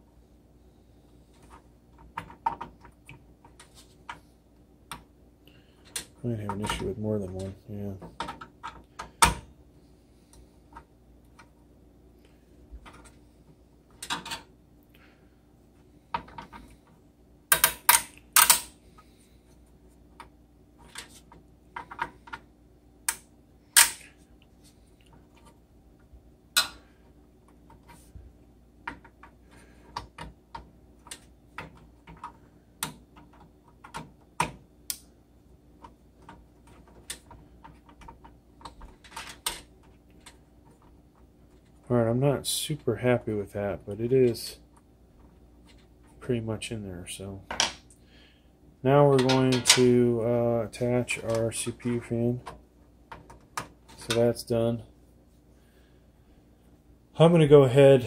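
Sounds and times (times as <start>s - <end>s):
plastic pins clicking and snapping: 17.5s - 18.7s, 28.8s - 35.0s, 35.8s - 41.8s.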